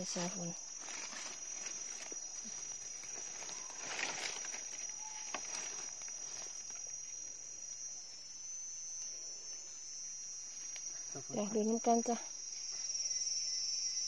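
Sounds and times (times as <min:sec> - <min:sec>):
rustling in dry leaves: 0:00.0 - 0:07.3
insects chorus: 0:00.0 - 0:14.0.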